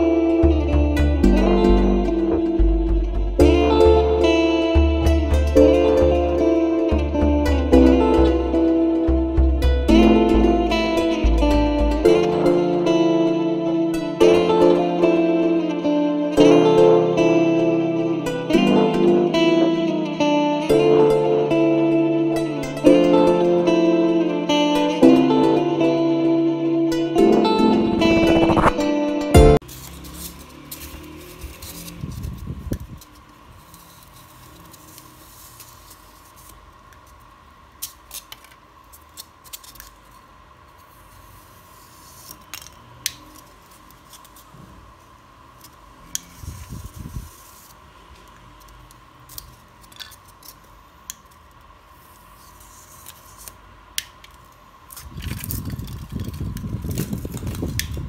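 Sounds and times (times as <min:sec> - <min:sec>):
foam rubbing and handling: 0:29.6 - 0:37.3.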